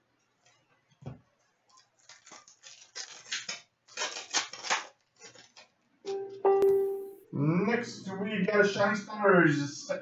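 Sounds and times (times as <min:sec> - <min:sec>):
card pack wrapper crinkling: 0:01.7 - 0:06.2.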